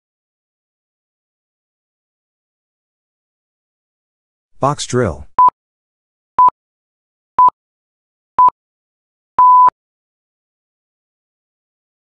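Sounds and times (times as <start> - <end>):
long timer beep: 9.4 - 9.7.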